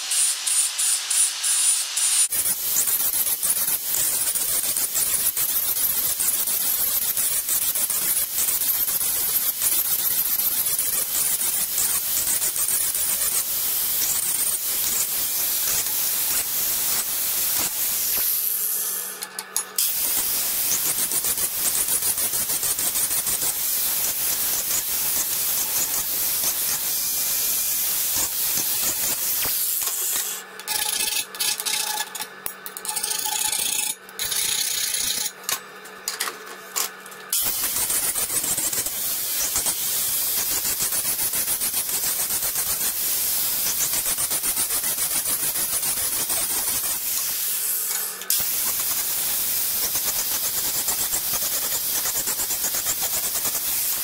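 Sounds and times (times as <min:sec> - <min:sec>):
angle grinder grinding metal: 0:00.0 - 0:54.0.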